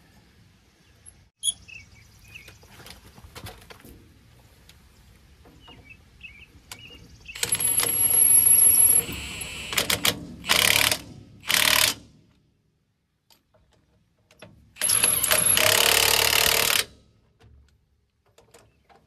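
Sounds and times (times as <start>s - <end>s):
impact wrench whining and hammering: 6.8s - 12.1s, 14.8s - 17.0s.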